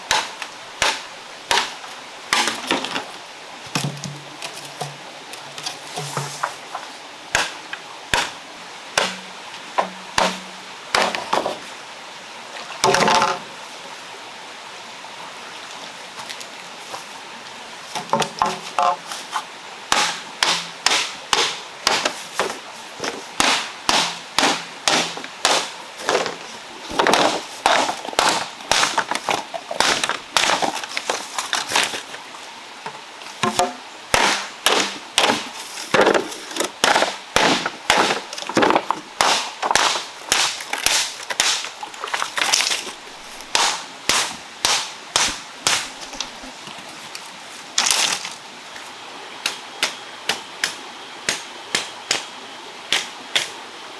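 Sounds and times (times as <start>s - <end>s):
knife splitting bamboo: 0.1s - 3.0s, 33.4s - 46.4s.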